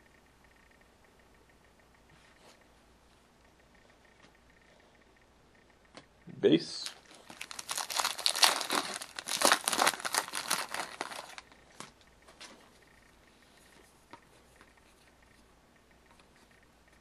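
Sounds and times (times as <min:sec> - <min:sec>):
wrapper crinkling and tearing: 0:06.8 - 0:11.4.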